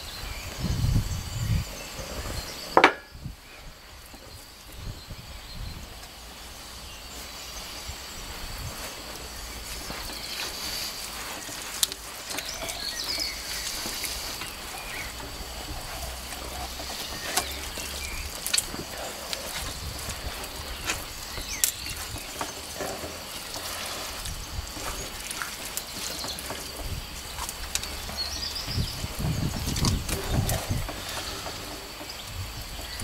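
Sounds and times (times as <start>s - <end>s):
hands rubbing raw chicken: 8.3s - 28.3s.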